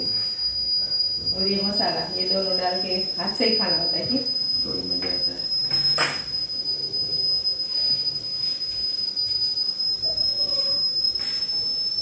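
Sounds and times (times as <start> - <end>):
high-pitched electronic whine: 0.0 - 12.0.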